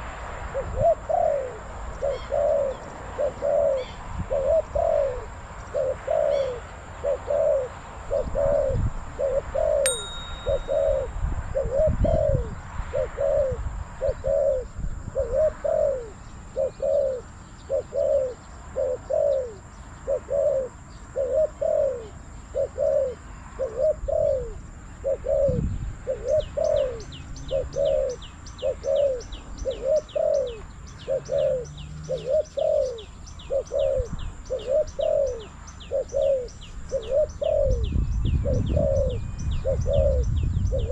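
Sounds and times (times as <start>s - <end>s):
dove cooing: 0.6s - 40.9s.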